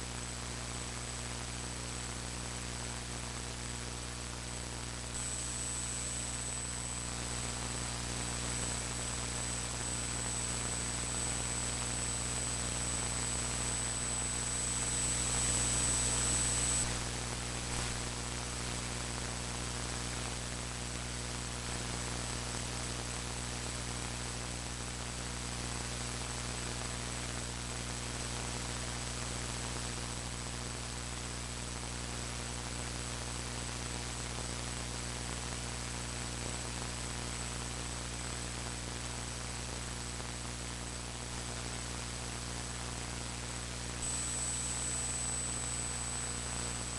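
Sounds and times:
mains hum: 0:00.0 - 0:46.9
electrical hiss: 0:04.6 - 0:18.8, 0:43.9 - 0:46.9
high-pitched whine: 0:05.2 - 0:09.0, 0:09.8 - 0:17.1, 0:44.0 - 0:46.9.

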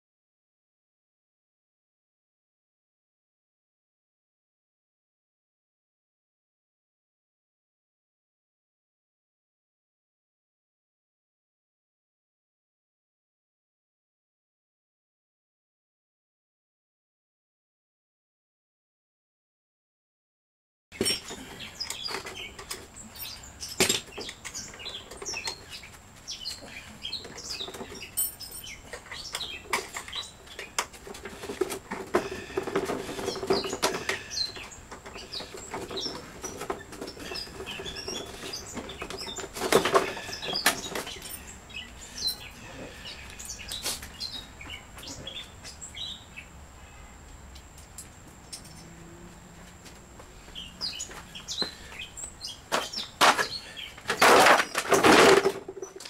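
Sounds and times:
birds chirping: 0:21.0 - 0:56.0.

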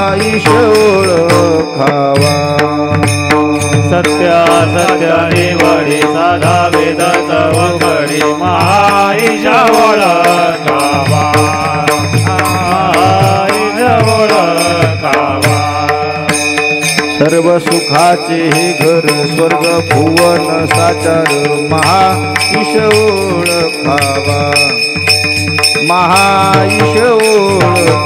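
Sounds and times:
low drum beats: 0:00.0 - 0:17.9
hand cymbals clashing: 0:00.0 - 0:28.0
man singing: 0:00.0 - 0:28.0.

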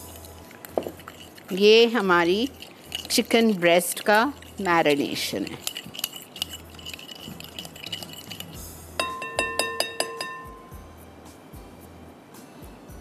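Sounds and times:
whisk clinking against glass bowl: 0:00.0 - 0:10.8
glass bowl ringing: 0:05.6 - 0:10.9.

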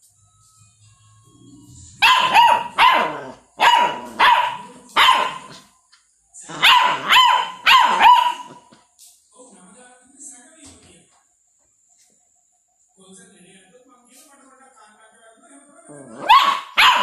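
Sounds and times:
dog barking: 0:02.0 - 0:05.7, 0:06.5 - 0:08.7, 0:16.1 - 0:17.0.

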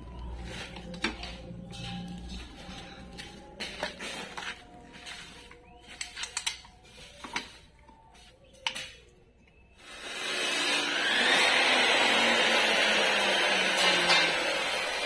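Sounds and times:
metal clicks of hand tools: 0:05.9 - 0:07.5.

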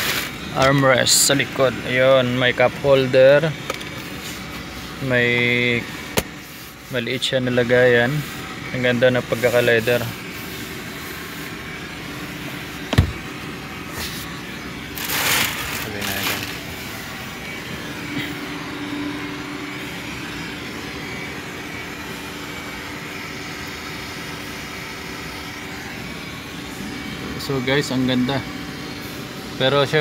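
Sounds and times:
steady low hum: 0:00.0 - 0:30.0
armrest thump: 0:12.9 - 0:13.2.

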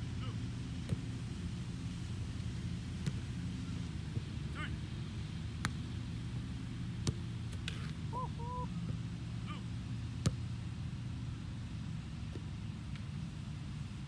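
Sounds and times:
low outdoor rumble: 0:00.0 - 0:14.0
soccer ball kicks: 0:00.7 - 0:01.2, 0:02.9 - 0:03.4, 0:06.9 - 0:08.2, 0:10.2 - 0:10.5
faint bird calls: 0:08.0 - 0:08.8.

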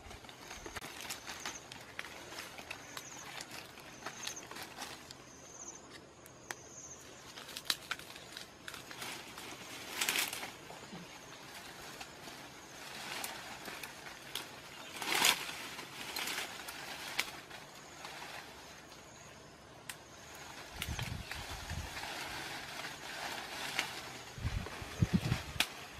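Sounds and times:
leaves rustling: 0:00.0 - 0:25.9
twigs snapping: 0:07.3 - 0:10.7, 0:13.0 - 0:17.9, 0:19.8 - 0:21.8, 0:25.1 - 0:25.9.

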